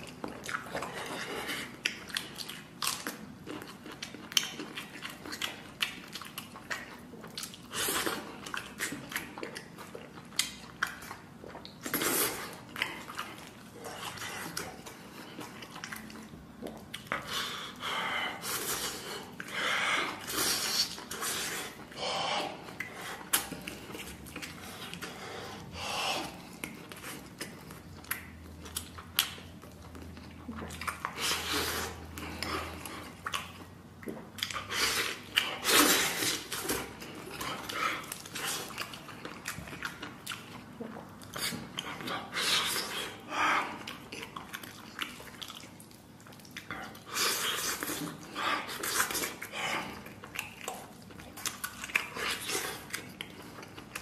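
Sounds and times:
person chewing and biting: 0:00.0 - 0:54.0.

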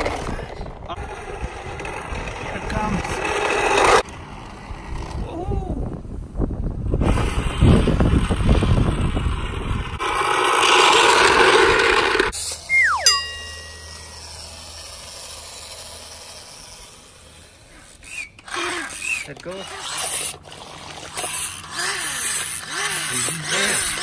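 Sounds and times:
falling whistle: 0:12.6 - 0:13.2
low hum: 0:12.6 - 0:17.4
bell-like ding: 0:13.0 - 0:14.3.

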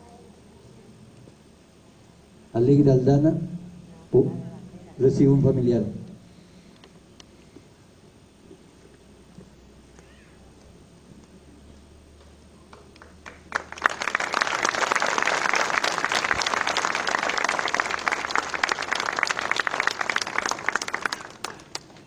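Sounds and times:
audience applauding: 0:12.7 - 0:22.0.

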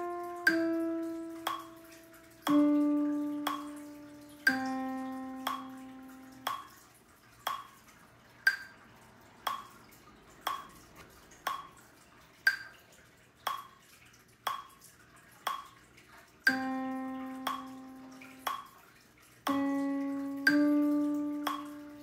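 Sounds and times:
metronome clicking: 0:00.0 - 0:06.8, 0:07.4 - 0:07.8, 0:08.4 - 0:08.8, 0:09.4 - 0:09.8, 0:10.4 - 0:10.8, 0:11.4 - 0:11.8, 0:12.4 - 0:12.8, 0:13.4 - 0:13.7, 0:14.5 - 0:14.7, 0:15.5 - 0:15.7, 0:16.4 - 0:18.8, 0:19.4 - 0:22.0.

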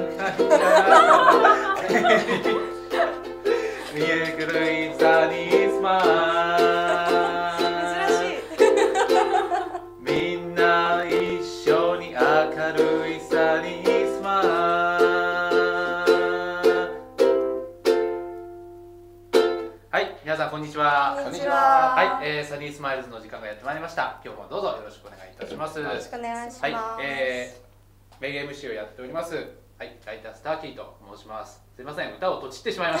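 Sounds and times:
ukulele strumming: 0:00.0 - 0:19.9
man singing: 0:00.6 - 0:08.7, 0:10.0 - 0:17.0, 0:21.1 - 0:22.5.

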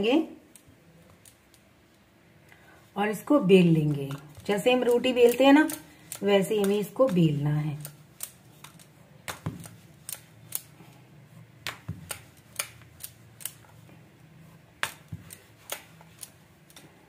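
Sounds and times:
rolling pin rolling dough: 0:03.0 - 0:17.0.

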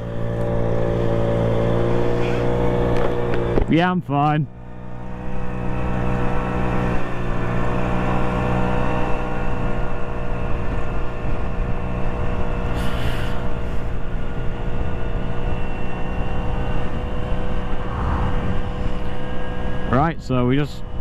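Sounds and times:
moped engine running: 0:00.0 - 0:03.8
road and wind noise: 0:00.0 - 0:21.0.

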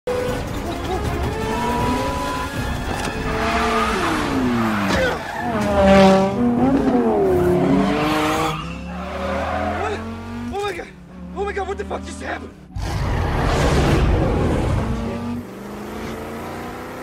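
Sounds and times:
film score music: 0:00.1 - 0:15.7
car engine revving: 0:00.1 - 0:17.0
tires squealing and skidding: 0:00.6 - 0:10.8.

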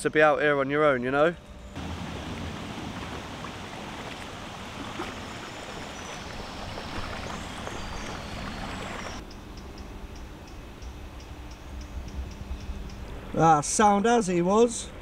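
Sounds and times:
kayak paddle splashing: 0:01.8 - 0:09.2
water rushing: 0:01.8 - 0:09.2
faint high ticks: 0:09.2 - 0:13.2.

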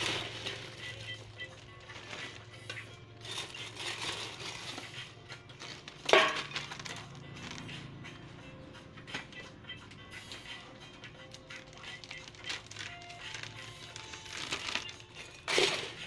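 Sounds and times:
metal scoop clatter: 0:00.0 - 0:01.0, 0:03.2 - 0:05.0, 0:05.6 - 0:07.1, 0:14.4 - 0:16.0
pork rinds rattling and crunching: 0:00.0 - 0:01.3, 0:03.2 - 0:07.7, 0:11.4 - 0:16.0.

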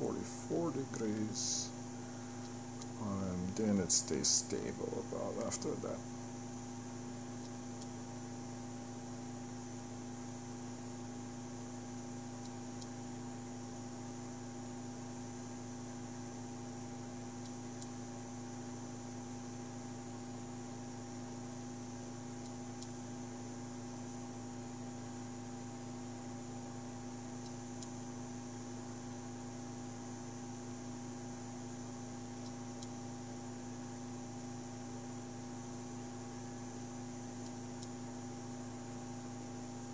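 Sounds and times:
stepper motors humming: 0:00.0 - 0:06.1
small cooling fan: 0:00.0 - 0:39.9
faint tick: 0:12.4 - 0:13.0, 0:17.4 - 0:18.0, 0:22.4 - 0:23.0, 0:27.4 - 0:28.0, 0:32.4 - 0:33.0, 0:37.4 - 0:38.0.

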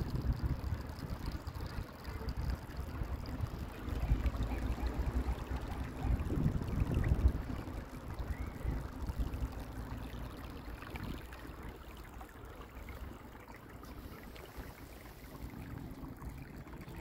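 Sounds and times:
wind buffeting microphone: 0:00.0 - 0:04.2, 0:05.0 - 0:09.5
choppy river water washing: 0:00.0 - 0:17.0.

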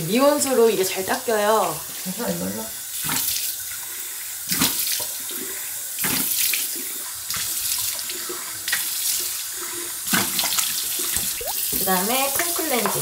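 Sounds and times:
sink tap running: 0:11.3 - 0:13.0.

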